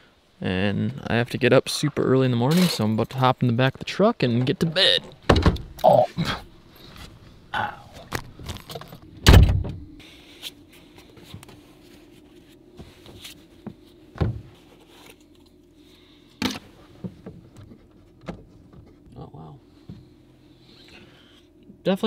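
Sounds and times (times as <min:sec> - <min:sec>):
bumps and knocks in truck: 0:05.2 - 0:05.8.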